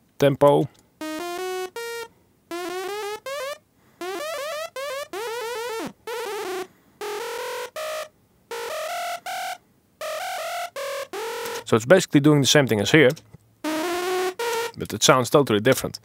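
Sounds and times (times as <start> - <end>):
synth buzz lead melody: 1.0 - 11.7, 13.6 - 14.8.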